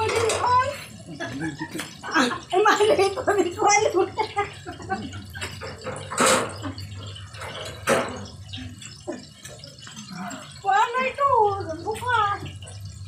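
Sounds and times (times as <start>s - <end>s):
chicken deep-frying in oil: 0.0s - 13.0s.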